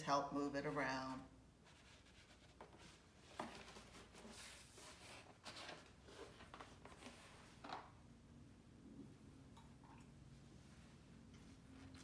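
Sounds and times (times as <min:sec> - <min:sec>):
paper rustling and rubbing: 0:01.6 - 0:07.6.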